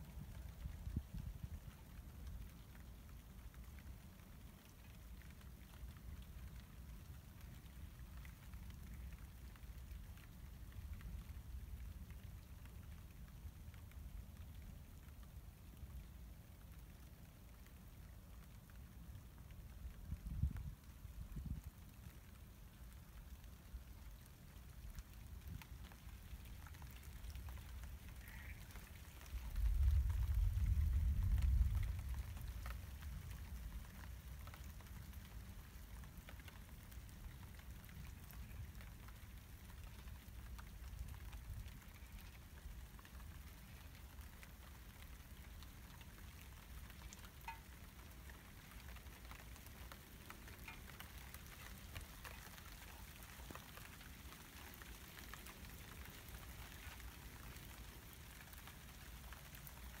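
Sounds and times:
light rain pattering: 0.0 - 60.0
water drips: 0.1 - 60.0
low thunder rumble: 29.3 - 33.6.

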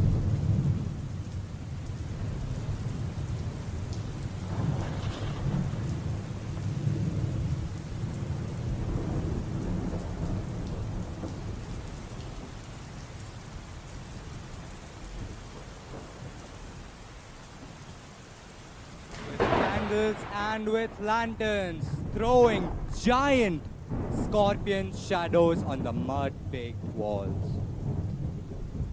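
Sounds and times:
low rolling thunder: 0.0 - 12.6, 19.1 - 28.9
steady rain: 0.0 - 28.9.

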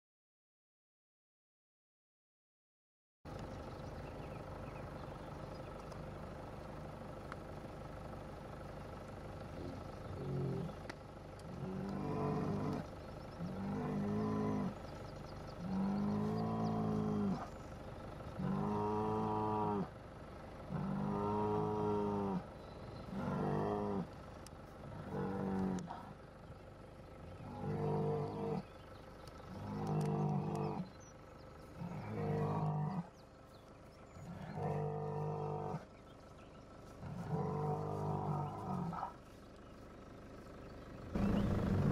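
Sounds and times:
bull bellowing: 9.6 - 17.6, 18.3 - 20.0, 20.6 - 31.0, 31.6 - 33.2, 34.0 - 36.1, 36.9 - 39.3, 41.1 - 41.9.

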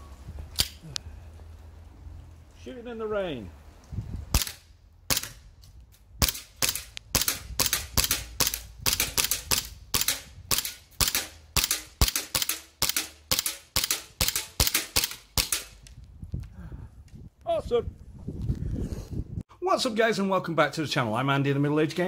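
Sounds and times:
airsoft pistol rapid shots: 4.3 - 5.4, 6.2 - 15.7.

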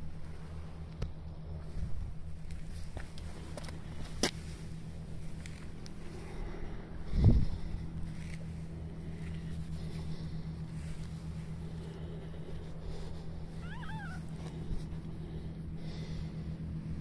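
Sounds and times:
steady low hum: 0.0 - 17.0
cat meowing: 13.6 - 14.3.

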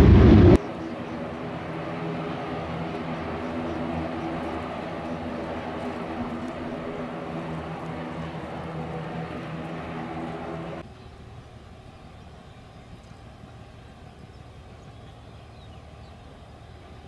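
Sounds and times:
low rumble: 0.0 - 10.8
jet droning hum: 0.0 - 12.3.

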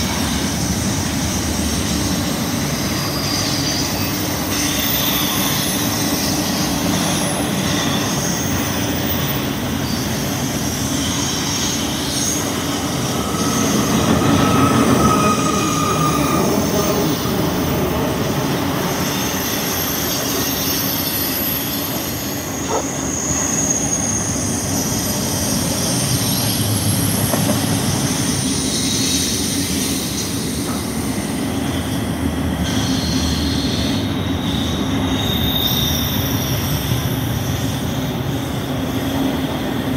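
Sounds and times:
high wheel squeals: 0.0 - 39.9
train wheels rumbling on rail: 0.0 - 39.9.

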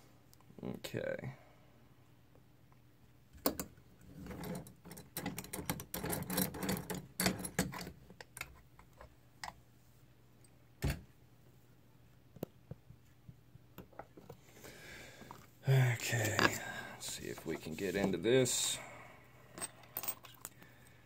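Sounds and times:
metal lock clicks and rattles: 4.3 - 8.5.

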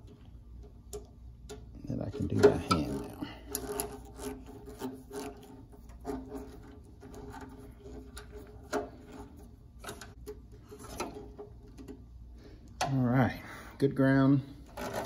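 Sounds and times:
screw threads rasping into metal: 2.2 - 10.2.

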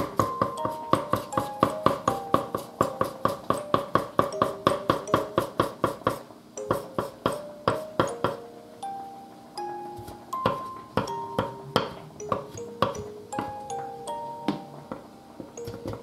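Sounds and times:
knife chopping on wooden board: 0.0 - 8.4
simple melody background music: 0.0 - 16.0.

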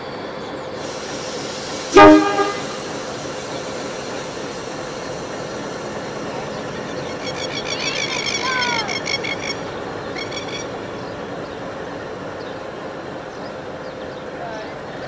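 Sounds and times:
diesel engine running: 0.0 - 15.0
locomotive air horn toot: 1.9 - 2.9.

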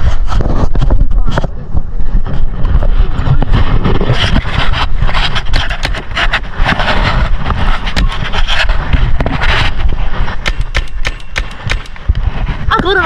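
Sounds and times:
microphone rubbing on clothing: 0.0 - 13.0
sharp clicks and knocks: 5.3 - 6.9, 7.5 - 13.0.

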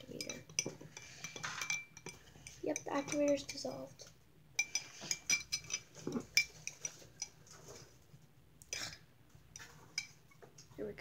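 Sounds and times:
spoon clinking against glass: 0.0 - 3.7, 4.6 - 7.4.

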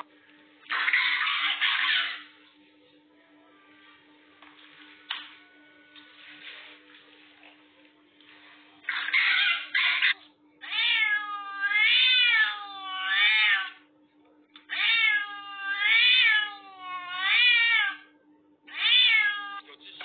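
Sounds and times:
cat meowing loudly: 8.9 - 13.8, 14.7 - 18.0, 18.7 - 19.7.

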